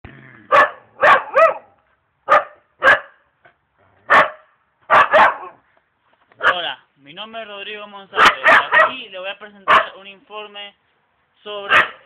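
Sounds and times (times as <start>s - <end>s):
dog barking: 0.5s - 3.2s, 4.1s - 5.6s, 6.4s - 6.6s, 8.2s - 9.0s, 9.7s - 10.0s, 11.7s - 12.0s.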